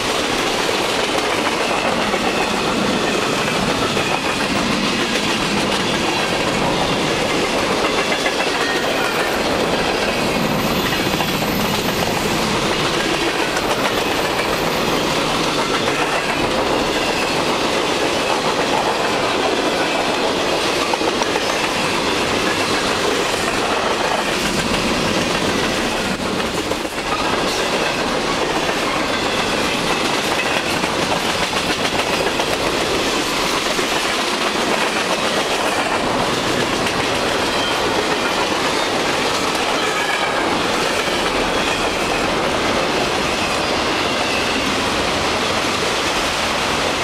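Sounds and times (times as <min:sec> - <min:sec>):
clickety-clack on rail joints: 0:00.0 - 0:47.0
freight train wheels rumbling: 0:00.0 - 0:47.0.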